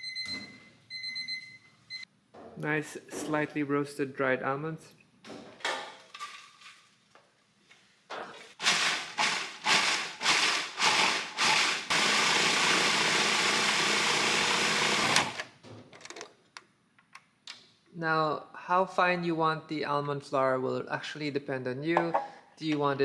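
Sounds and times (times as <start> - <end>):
food processor grinding almonds: 8.6 - 15.4.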